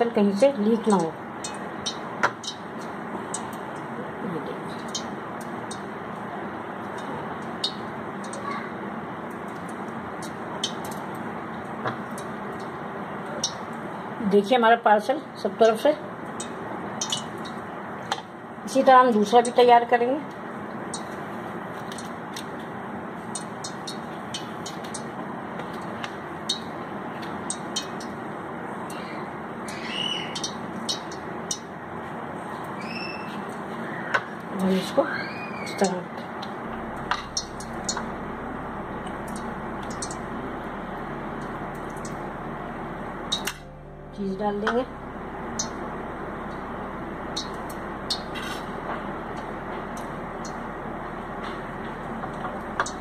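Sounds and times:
steady background noise: 0.0 - 53.0
steady background rushing noise: 35.6 - 53.0
high gliding tone: 36.7 - 53.0.

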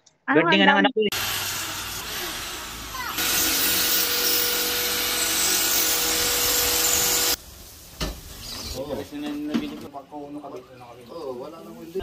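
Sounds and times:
electric drill boring into wall: 1.1 - 7.4.

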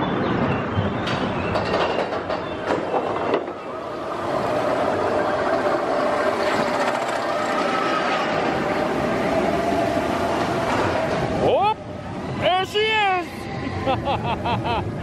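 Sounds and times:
roller coaster chain lift rattling: 1.0 - 11.5.

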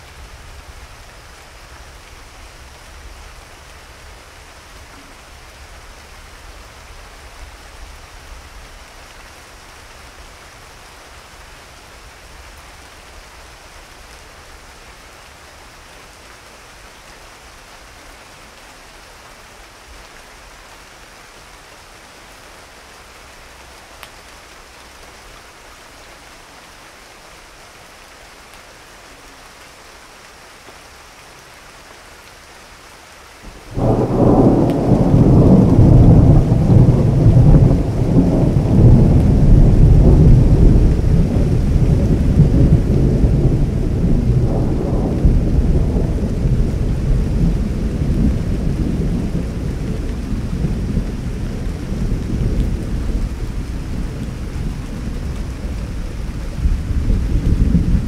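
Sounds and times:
rain hissing: 21.0 - 58.0
thunder rumbling: 33.5 - 58.0.

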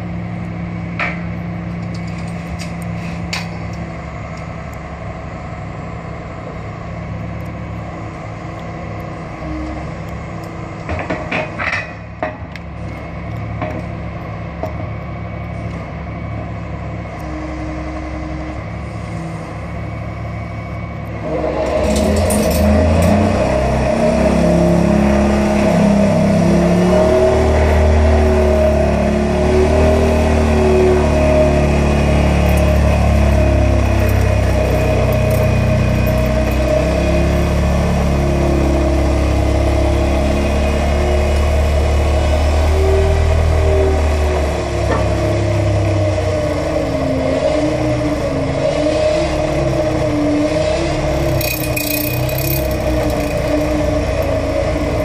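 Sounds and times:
excavator engine running: 0.0 - 55.0
vibro hammer humming and rumbling: 20.2 - 47.0, 50.9 - 55.0.

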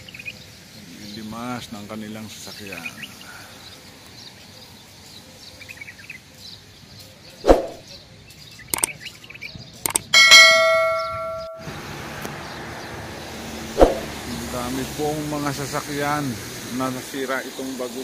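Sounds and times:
pop sound effect: 7.5 - 7.8, 13.8 - 14.1
mouse clicks: 8.7 - 8.9, 9.8 - 10.1
notification bell ringing: 10.1 - 11.7.

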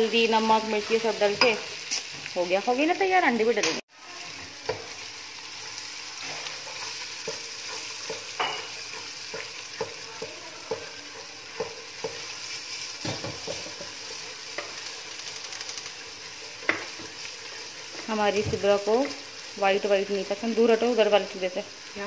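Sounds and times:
eggs and potatoes sizzling: 0.0 - 22.0
spatula scraping and knocking pan: 6.1 - 15.1, 16.0 - 19.4.

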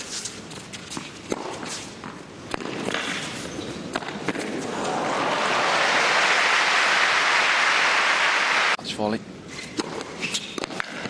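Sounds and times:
tennis ball strikes: 0.9 - 3.2
crowd applause: 4.6 - 8.8.

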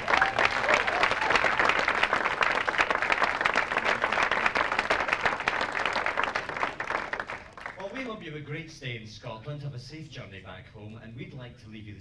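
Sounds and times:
audience applause: 0.0 - 8.2.

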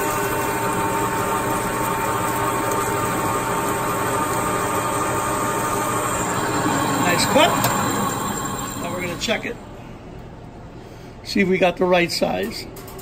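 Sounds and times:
drill cutting into metal: 0.0 - 9.3
metal lathe running: 0.0 - 9.8.

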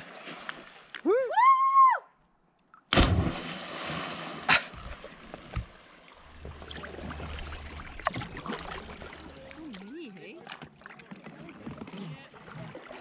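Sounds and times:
soft water sounds: 0.0 - 13.0
loud splash: 2.9 - 4.7.

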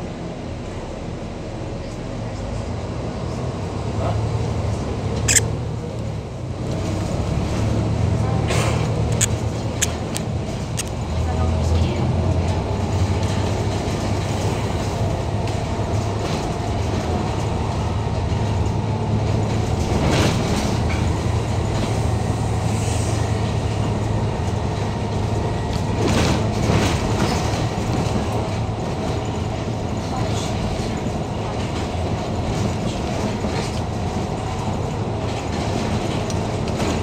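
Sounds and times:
bus body and windows rattling: 0.0 - 37.0
road noise: 0.0 - 37.0.

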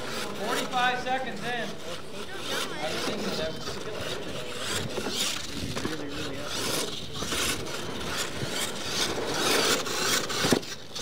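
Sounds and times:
rc truck tyres churning dirt: 0.0 - 11.0.

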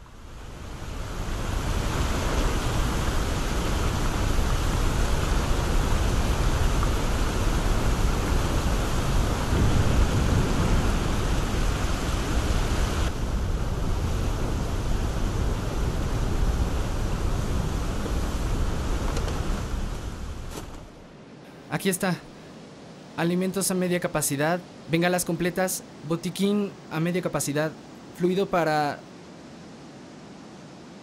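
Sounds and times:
waterfalls roaring: 0.0 - 20.5.

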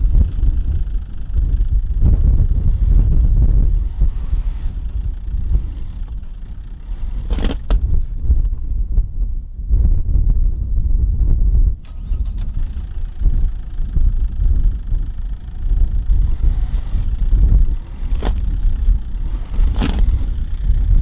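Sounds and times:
van engine rumbling: 0.0 - 21.0.

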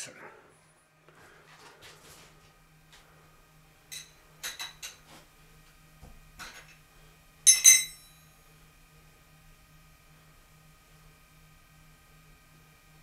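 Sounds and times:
sharp metal-on-metal clinks: 7.5 - 8.2.

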